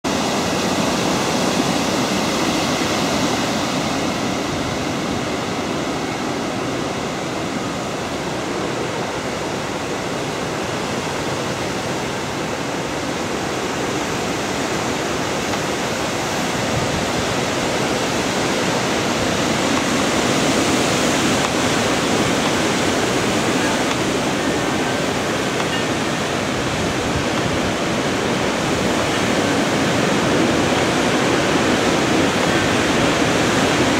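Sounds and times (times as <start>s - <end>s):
storm wind rushing through trees: 0.0s - 33.9s.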